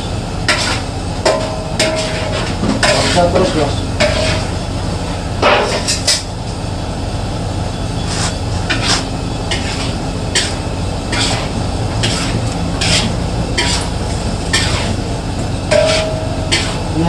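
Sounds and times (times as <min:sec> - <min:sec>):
metal spoon scraping a wok: 0:00.5 - 0:04.5, 0:08.0 - 0:15.0, 0:15.7 - 0:17.0.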